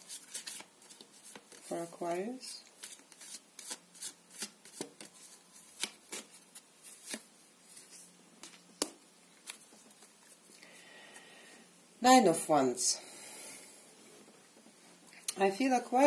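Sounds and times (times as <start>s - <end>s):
cards shuffling and snapping: 0.1s - 1.7s, 2.8s - 7.3s.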